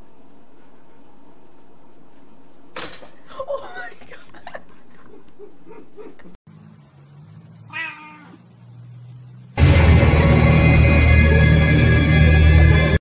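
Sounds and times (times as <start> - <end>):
low hum: 5.2 - 13.0
cat meowing: 7.7 - 8.4
music: 9.6 - 13.0.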